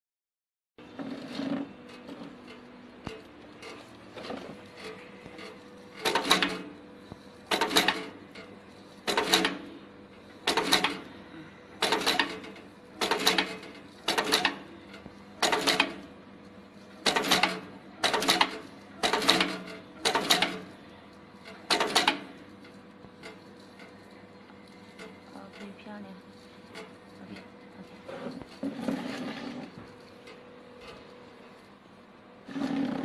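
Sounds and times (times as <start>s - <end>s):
machine metallic clack and rattle: 1.0s - 11.1s, 11.8s - 20.8s, 21.4s - 24.1s.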